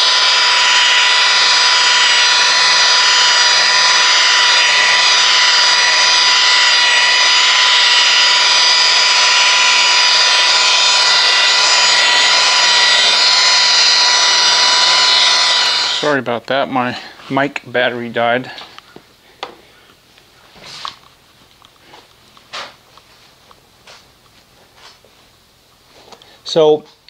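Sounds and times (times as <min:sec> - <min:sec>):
rotary polisher motor whine: 0:00.0 - 0:16.2.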